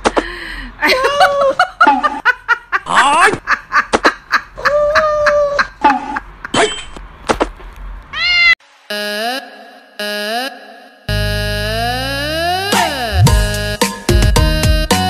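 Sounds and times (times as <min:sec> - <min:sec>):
people talking: 0:00.8 - 0:01.6
snickering laughter: 0:00.9 - 0:06.7.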